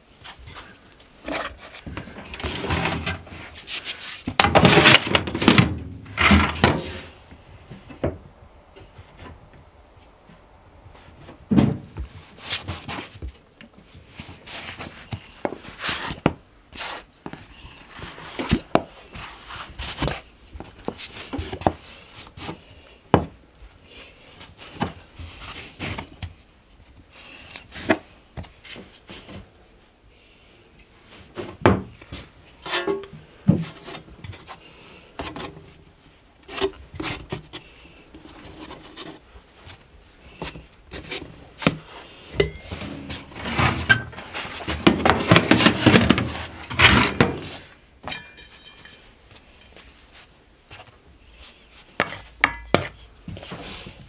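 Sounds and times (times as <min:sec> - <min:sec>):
rubbing and scraping dough: 0:00.0 - 0:07.3, 0:12.0 - 0:23.0, 0:31.0 - 0:47.8, 0:48.4 - 0:54.0.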